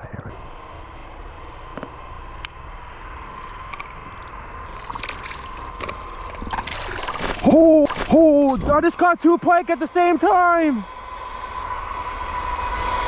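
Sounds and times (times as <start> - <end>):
steady low rumble: 0.0 - 13.0
fish flopping on wet ice: 3.3 - 8.7.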